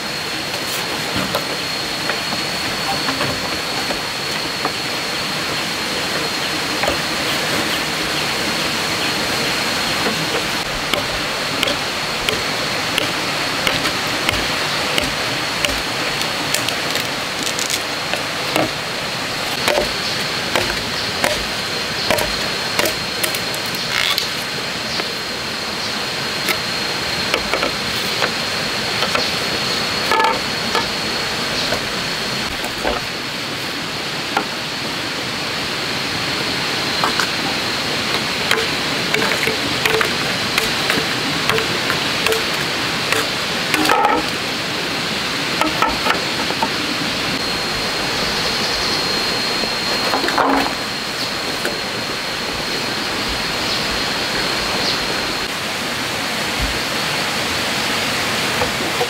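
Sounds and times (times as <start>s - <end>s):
constant high whine: 0.0s - 59.0s
machete chopping bamboo: 10.3s - 18.8s, 19.6s - 21.5s, 22.1s - 24.3s, 38.5s - 44.4s.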